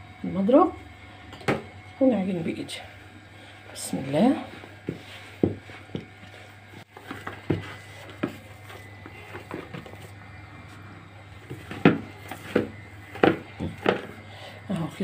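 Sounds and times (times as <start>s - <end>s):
dough thumping and squishing: 4.6s - 10.2s, 11.4s - 14.2s.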